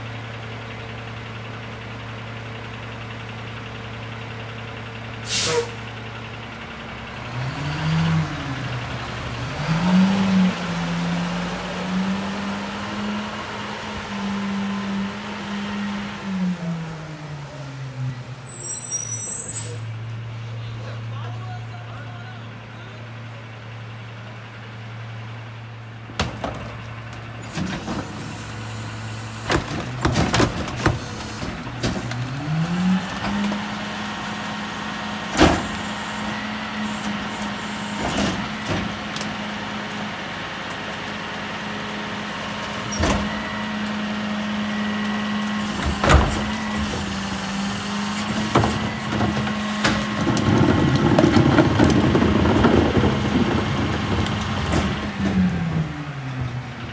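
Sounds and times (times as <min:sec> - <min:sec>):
garbage truck engine revving: 0:06.5 - 0:18.8, 0:23.1 - 0:56.9
trash cart clanks and bangs: 0:26.1 - 0:28.6, 0:29.4 - 0:32.4, 0:35.3 - 0:36.3, 0:37.1 - 0:39.3, 0:45.6 - 0:47.4, 0:48.1 - 0:56.6.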